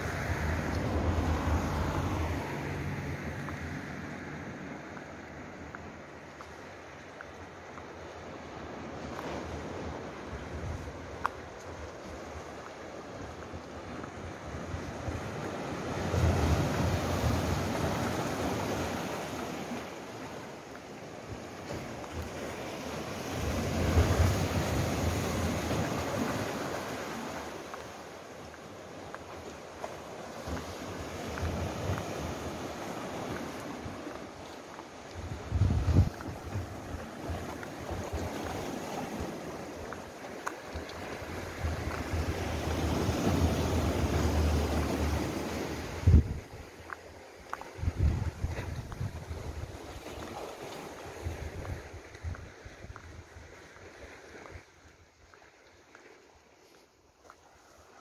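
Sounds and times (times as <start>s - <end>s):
waves breaking over rocks: 0.0s - 58.0s
wind buffeting microphone: 35.1s - 46.9s, 47.5s - 53.8s.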